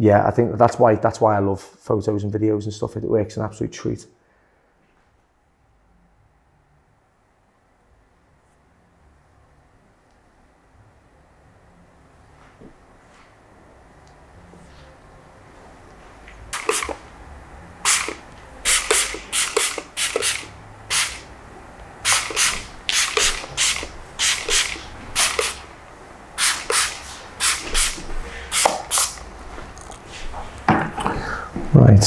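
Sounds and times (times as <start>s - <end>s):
spray bottle spritzing: 16.5s - 17.0s, 17.8s - 21.3s, 22.0s - 25.7s, 26.4s - 29.2s.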